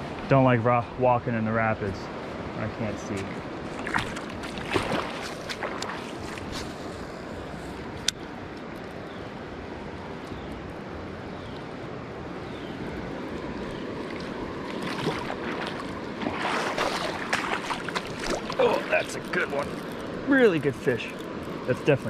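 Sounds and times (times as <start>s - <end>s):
river water rushing through rapids: 12.8s - 22.0s.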